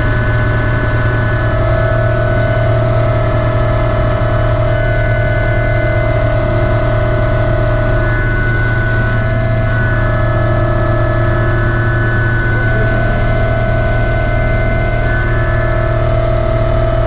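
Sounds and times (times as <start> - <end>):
helicopter turbine whine: 0.0 - 17.0
loud low drone: 0.0 - 17.0.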